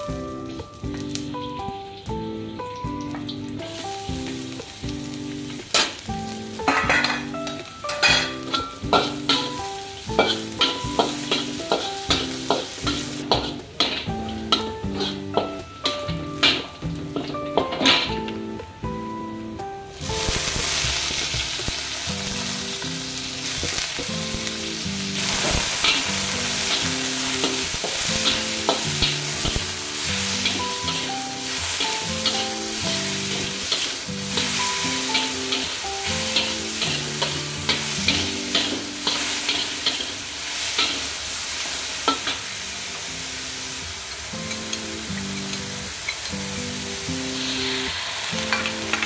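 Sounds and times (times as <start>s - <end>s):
background music: 0.0s - 40.9s, 42.1s - 49.0s
mushrooms sizzling in a wok: 0.0s - 49.0s
metal spatula scraping a pan: 10.2s - 18.2s, 31.7s - 41.1s.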